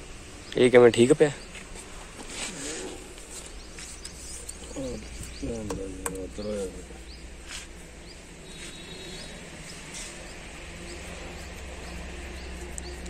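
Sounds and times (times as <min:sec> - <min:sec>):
bird chirps: 0:03.6 - 0:07.3, 0:08.0 - 0:13.0
steady low hum: 0:09.2 - 0:13.0.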